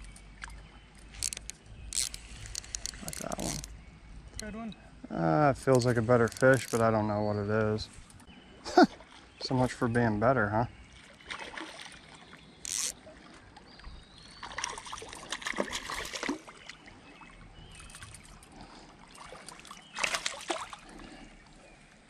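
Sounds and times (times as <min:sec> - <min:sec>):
fish splashing at water surface: 0:19.1 - 0:21.1.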